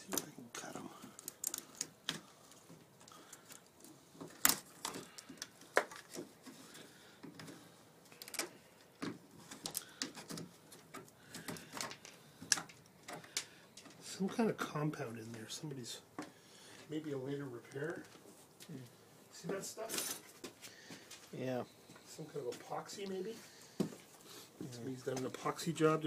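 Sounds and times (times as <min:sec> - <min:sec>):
small clicks snaps and scrapes: 0:00.1 - 0:06.3, 0:07.2 - 0:14.4.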